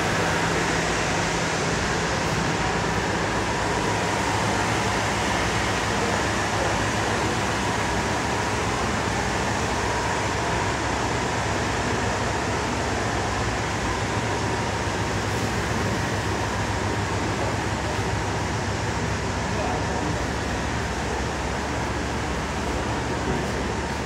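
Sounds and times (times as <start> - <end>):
ventilation rushing noise: 0.0 - 24.0.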